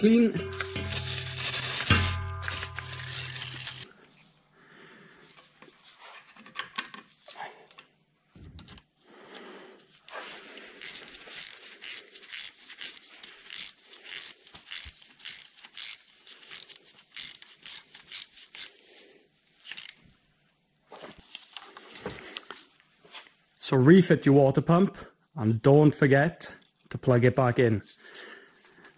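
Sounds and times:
hand tool rubbing and scraping: 0.0 - 3.9, 10.0 - 20.0.

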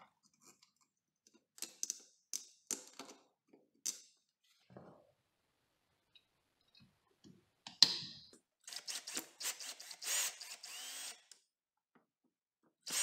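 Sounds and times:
cordless drill driving screw: 8.7 - 11.4.

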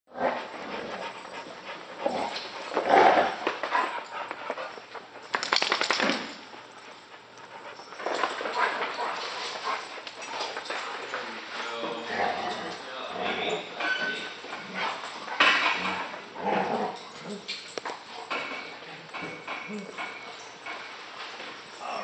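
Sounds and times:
dogs lunging sharp sounds: 2.0 - 11.3
dogs whining and grumbling: 11.6 - 20.9.

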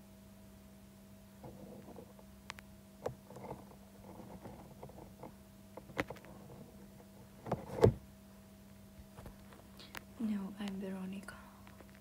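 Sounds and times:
steady low hum: 0.0 - 12.0
soft clicks and rustles: 9.0 - 12.0.

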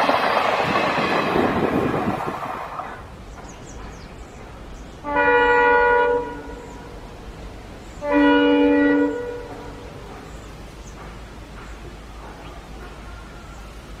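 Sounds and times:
low rumble of approaching train: 0.0 - 14.0
locomotive multi-tone horn: 5.0 - 7.0, 8.0 - 10.0.

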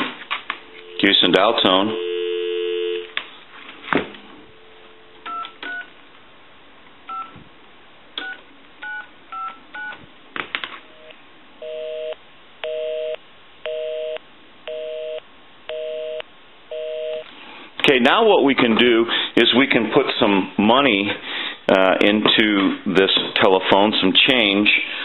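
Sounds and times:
busy signal buzz: 0.7 - 3.1, 11.0 - 17.3
keypad two-tone beeps: 5.3 - 5.9, 8.2 - 10.0.

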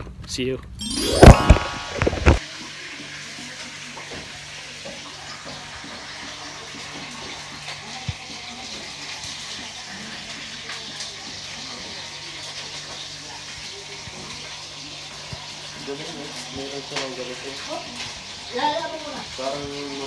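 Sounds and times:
tap water running: 4.0 - 20.0.

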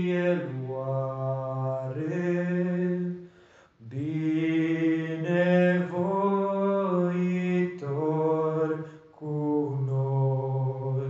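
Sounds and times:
person singing a slow hymn: 0.0 - 11.0.

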